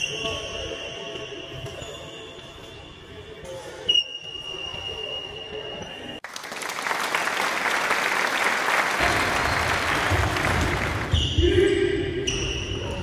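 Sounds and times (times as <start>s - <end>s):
applause-like noise: 6.2s - 11.2s.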